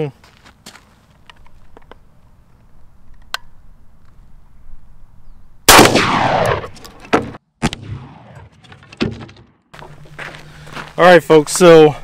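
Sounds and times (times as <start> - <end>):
shotgun shot with echo: 5.7 - 8.5.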